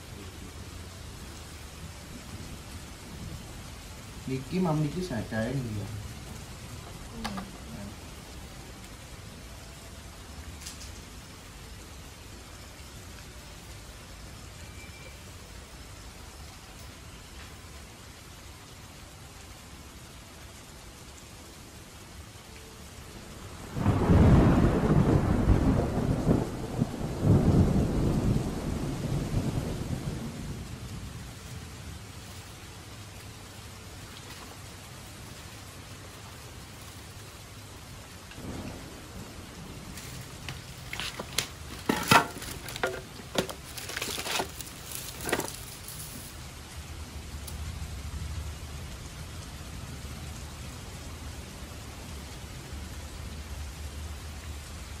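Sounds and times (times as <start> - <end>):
steady rain: 0.0 - 55.0
deep thunder rumble: 23.6 - 31.4, 38.4 - 41.0
firewood sticks knocking: 40.0 - 46.2.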